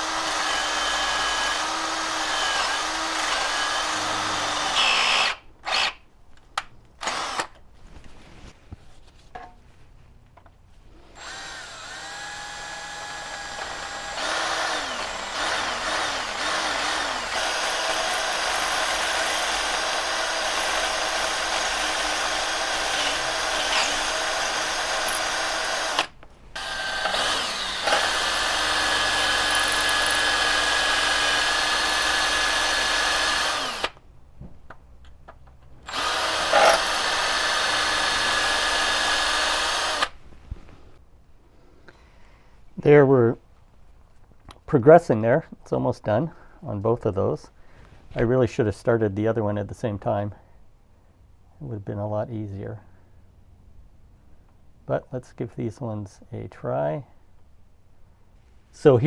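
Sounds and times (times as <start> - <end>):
cordless drill boring metal: 0.0 - 6.0, 7.0 - 7.6, 11.2 - 34.0, 35.8 - 40.2.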